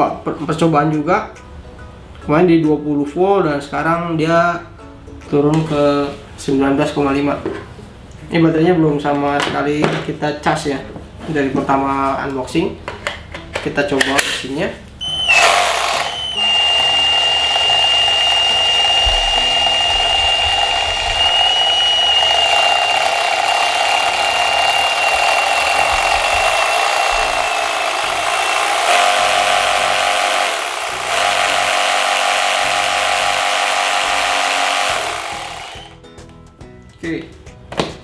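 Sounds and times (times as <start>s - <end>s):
reciprocating saw motor whine: 15.0s - 36.0s.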